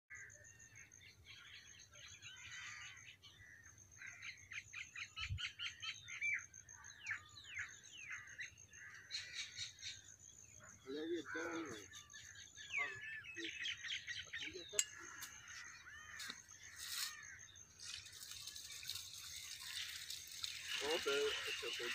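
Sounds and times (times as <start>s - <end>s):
small birds chirping: 0.1s - 21.9s.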